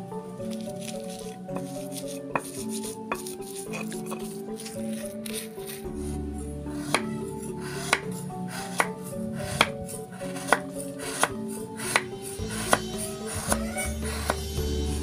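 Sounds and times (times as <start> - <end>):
background music: 0.0 - 15.0
knife chopping on wooden board: 7.8 - 14.6.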